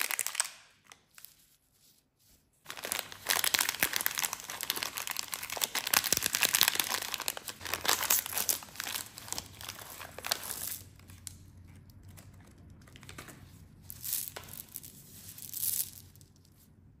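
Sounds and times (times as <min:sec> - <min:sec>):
plastic bag crinkling: 0:02.7 - 0:11.3.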